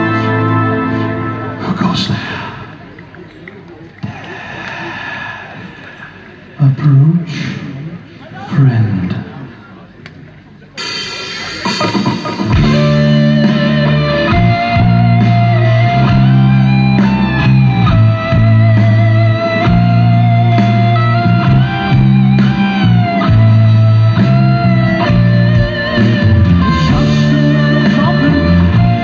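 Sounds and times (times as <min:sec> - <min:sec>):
live rock band: 0:00.0 - 0:02.4, 0:10.8 - 0:29.0
electric guitar with pitch bends: 0:10.8 - 0:29.0
bass line: 0:12.4 - 0:29.0.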